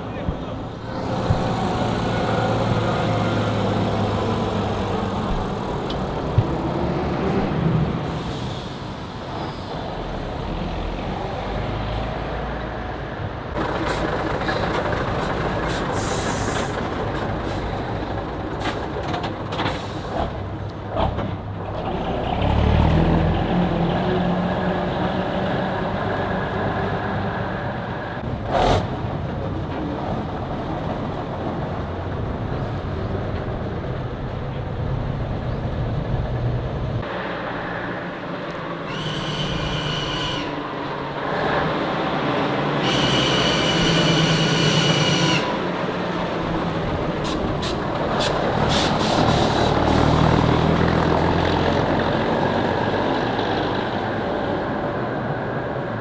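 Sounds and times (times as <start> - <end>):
bus diesel engine driving past: 0.0 - 56.0
bus engine revving: 0.2 - 39.7, 40.4 - 56.0
air brakes hissing: 15.7 - 16.8, 19.7 - 20.2, 38.9 - 40.6, 47.2 - 50.0.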